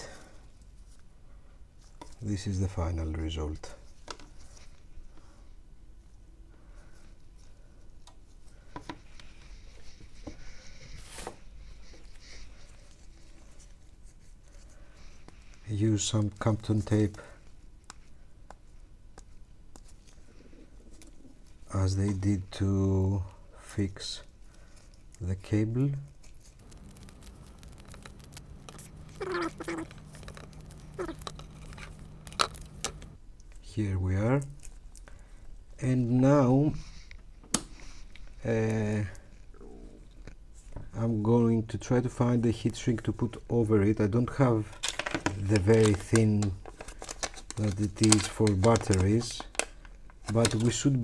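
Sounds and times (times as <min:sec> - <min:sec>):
faint steady hum: 0:00.0 - 0:51.0
scratchy rustle: 0:24.7 - 0:33.2.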